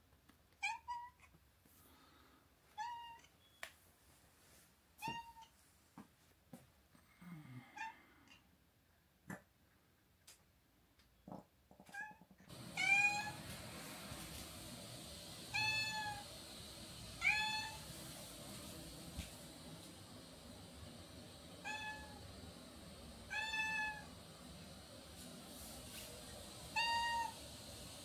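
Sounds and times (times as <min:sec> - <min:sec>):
cat meowing: 0:02.8 - 0:03.3, 0:12.8 - 0:13.4, 0:17.2 - 0:17.8, 0:21.6 - 0:22.2, 0:23.3 - 0:24.1.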